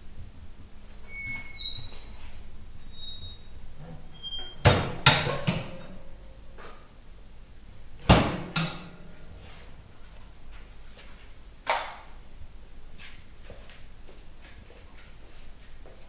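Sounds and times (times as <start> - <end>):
stove door squeaking: 1.0 - 2.2, 2.8 - 5.8.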